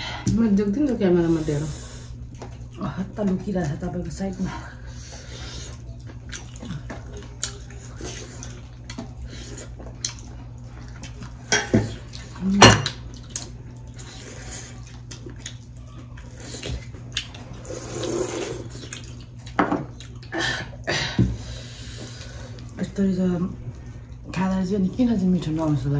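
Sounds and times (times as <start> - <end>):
soup slurping: 17.6 - 18.9.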